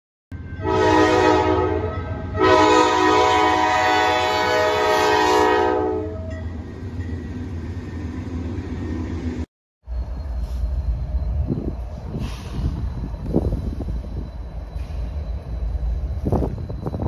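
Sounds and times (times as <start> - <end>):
locomotive air horn: 0.4 - 6.3
locomotive rumble: 0.4 - 17.0.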